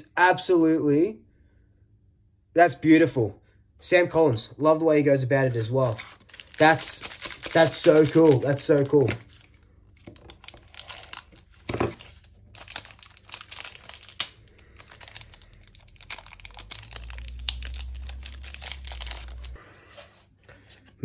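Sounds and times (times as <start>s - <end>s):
card pack wrapper crinkling and tearing: 5.5s - 19.6s
low rumble: 14.8s - 19.7s.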